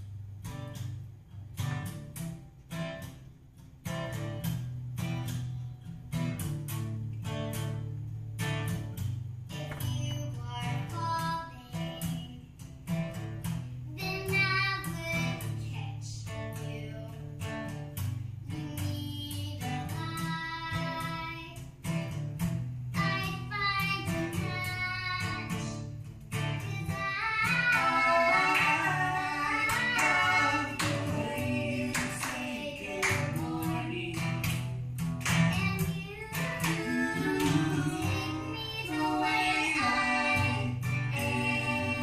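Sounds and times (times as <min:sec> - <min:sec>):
acoustic guitar strumming: 0:00.0 - 0:42.0
young female voice singing: 0:09.5 - 0:12.6, 0:13.9 - 0:17.3, 0:18.5 - 0:21.7, 0:23.0 - 0:25.9, 0:26.5 - 0:34.6, 0:35.4 - 0:42.0.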